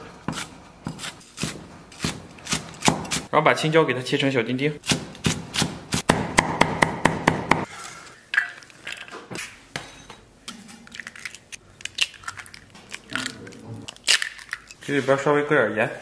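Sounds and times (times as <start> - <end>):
cleaver chopping on wooden block: 0.9 - 3.3, 4.9 - 7.6
eggs cracking: 10.5 - 14.9.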